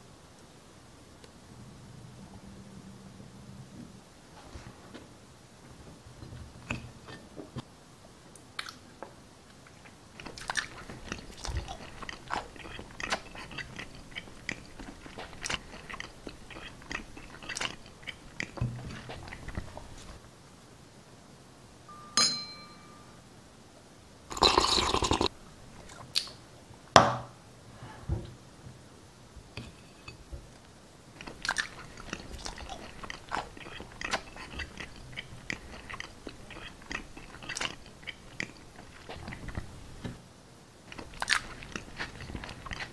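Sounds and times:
mouth noises mimicking crunchy chewing: 8.6 - 8.8, 9.8 - 20.2, 31.2 - 39.8.

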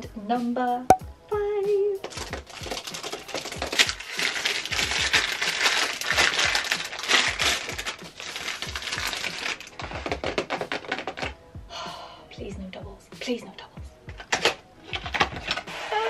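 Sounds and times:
plastic wrapper crinkling: 2.0 - 11.2.

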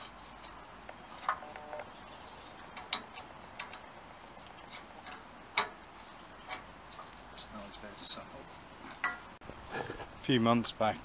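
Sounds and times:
clicks and taps on metal parts: 2.7 - 3.9.

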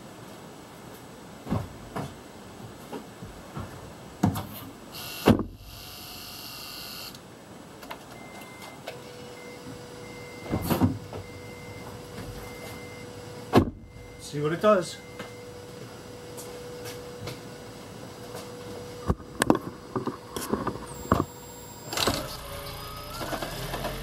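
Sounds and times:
steady electric hum: 0.0 - 24.0.

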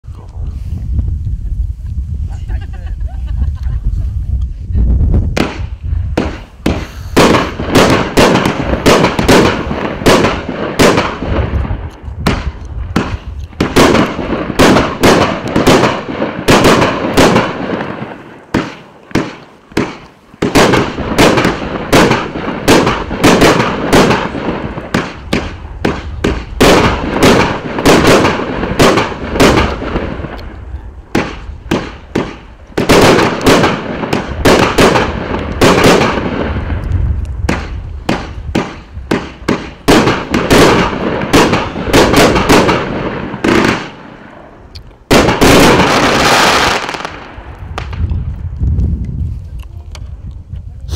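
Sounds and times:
firework firing rapid bangs: 5.3 - 36.8, 37.4 - 48.1.

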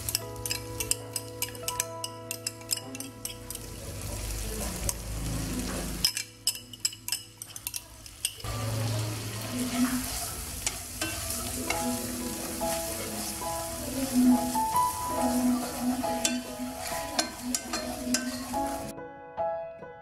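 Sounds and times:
wooden spatula stirring: 0.0 - 3.7, 9.5 - 18.9
sauce sizzling in a pan: 0.0 - 18.9.

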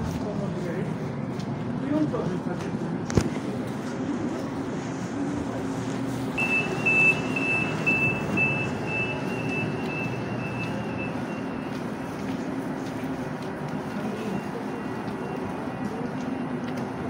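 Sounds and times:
train motor hum: 0.0 - 17.0
high electronic warning beeps: 6.4 - 12.3, 13.8 - 16.8.

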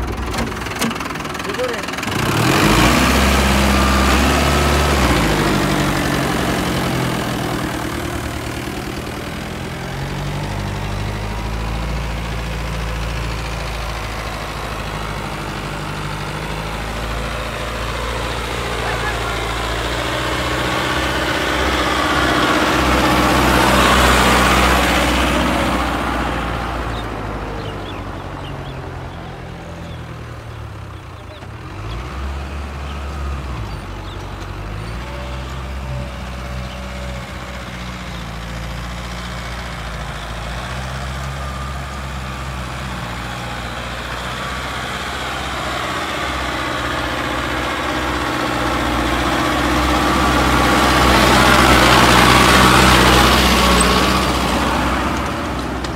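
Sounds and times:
tractor diesel engine under load: 0.0 - 55.9.

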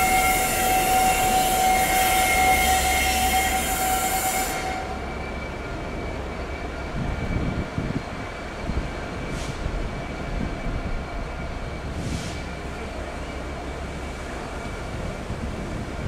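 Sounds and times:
high squeal: 0.0 - 7.6
diesel locomotive engine rumbling: 0.0 - 16.0.

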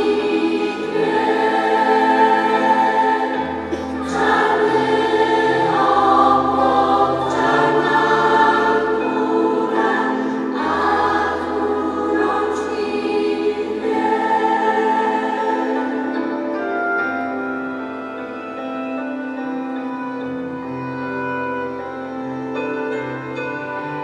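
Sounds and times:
choir of young voices singing: 0.0 - 17.2.

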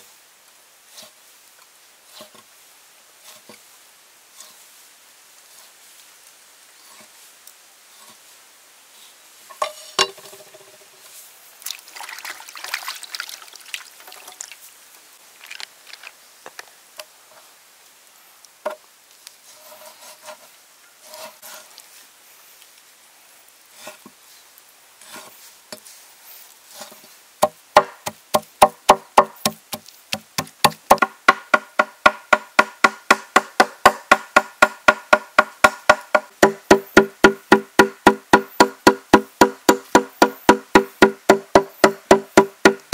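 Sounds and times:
cleaver chopping on wooden block: 27.4 - 42.9.

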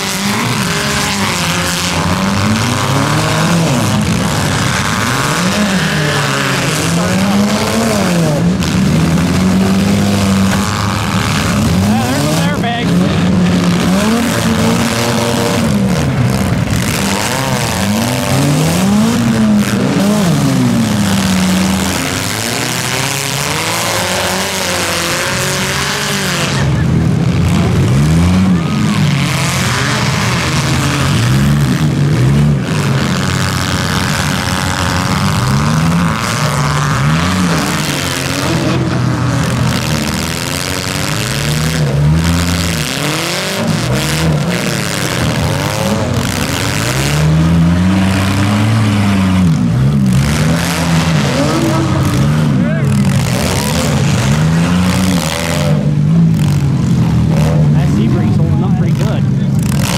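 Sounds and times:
car engines revving hard: 0.0 - 59.9.

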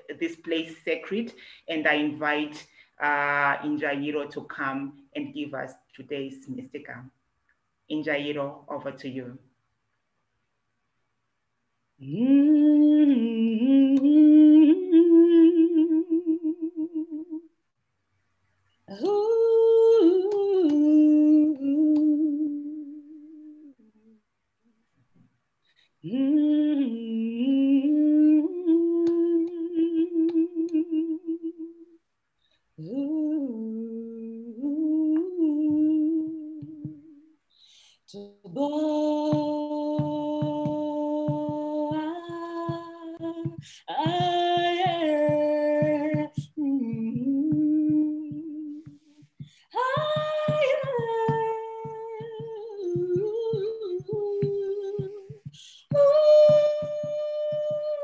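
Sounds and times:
woman humming and singing: 12.0 - 17.5, 18.9 - 24.2, 26.0 - 32.0, 32.8 - 37.3, 38.2 - 58.0.

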